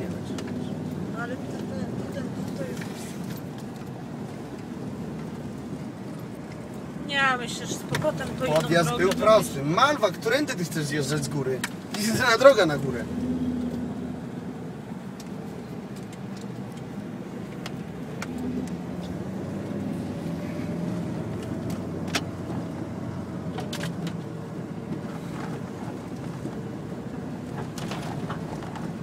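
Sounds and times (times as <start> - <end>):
car engine running: 0.0 - 29.0.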